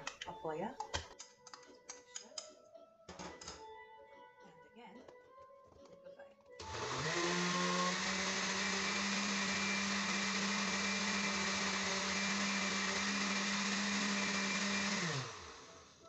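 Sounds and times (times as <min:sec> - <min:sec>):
blender motor hum: 0:06.6 - 0:16.0.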